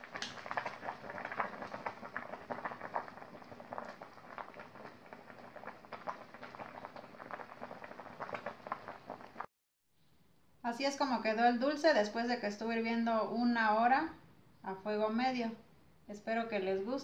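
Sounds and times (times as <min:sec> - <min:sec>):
pot boiling and bubbling: 0:00.0 - 0:09.5.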